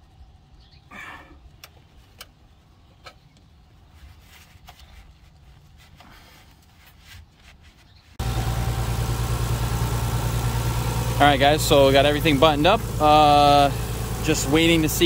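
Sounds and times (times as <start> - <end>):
car engine idling: 8.2 - 15.0.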